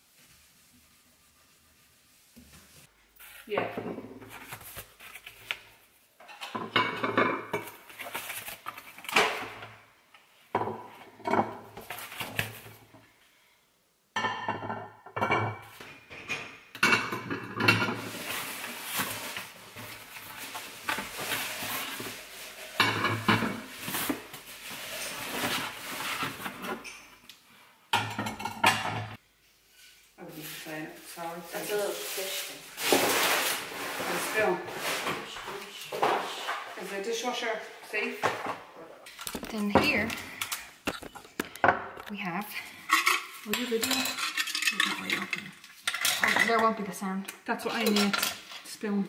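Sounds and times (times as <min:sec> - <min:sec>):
cardboard packing rustling: 0:04.3 - 0:05.8, 0:07.8 - 0:09.1, 0:18.0 - 0:26.8, 0:30.4 - 0:35.8.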